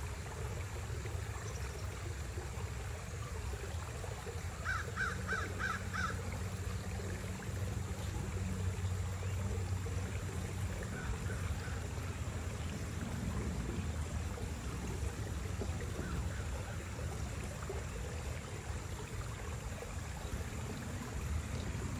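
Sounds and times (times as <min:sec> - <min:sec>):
bird calling: 0:04.6 - 0:06.2.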